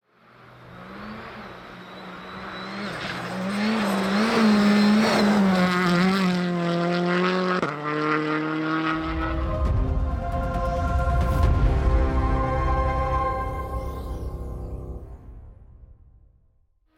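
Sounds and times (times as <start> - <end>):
rally car engine at high revs: 0.2 - 9.5
tyres rushing and snow spraying: 0.4 - 6.2.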